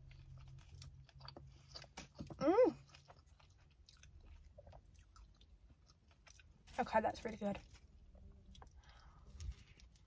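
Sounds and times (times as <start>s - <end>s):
person chewing crunchy sandwich: 0.0s - 6.8s, 7.6s - 10.0s
person humming mm: 2.4s - 2.8s.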